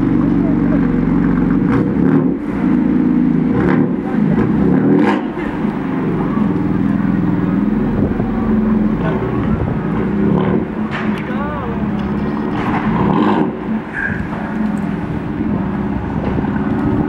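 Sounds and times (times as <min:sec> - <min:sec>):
car engine at low revs: 0:00.0 - 0:17.0.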